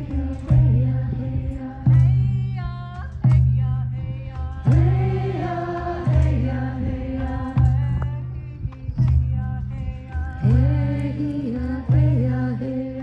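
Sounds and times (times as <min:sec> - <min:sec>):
group of voices singing: 0:00.0 - 0:02.6, 0:04.0 - 0:13.0
deep drum strikes: 0:00.0 - 0:11.2.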